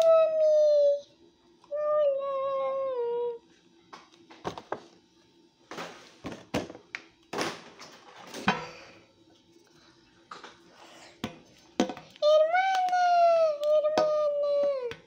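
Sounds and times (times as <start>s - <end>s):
toy doll high voice-like tone: 0.0s - 1.0s, 1.7s - 3.4s, 12.2s - 14.9s.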